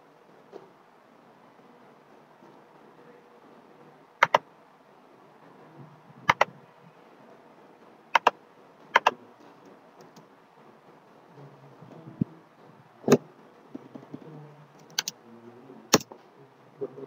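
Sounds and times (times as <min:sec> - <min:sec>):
faint steady hiss: 0:00.0 - 0:17.0
computer mouse double-clicks: 0:14.9 - 0:15.1.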